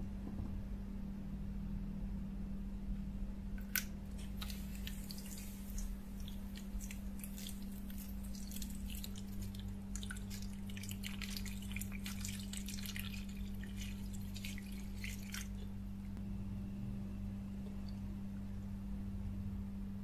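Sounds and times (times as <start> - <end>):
steady low hum: 0.0 - 20.0
liquid pouring and splashing: 4.1 - 15.8.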